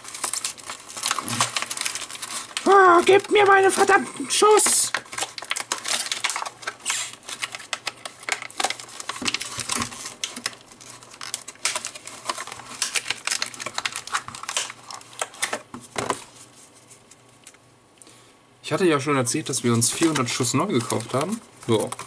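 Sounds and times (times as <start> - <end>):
plastic packaging crackling: 0.0 - 17.6, 19.4 - 22.0.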